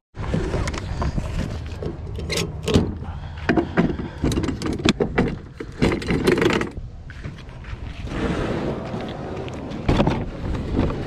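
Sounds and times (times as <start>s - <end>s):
handling clicks and rustles: 0.2s - 8.1s
wind rumble on microphone: 0.2s - 11.0s
footsteps: 7.0s - 11.0s.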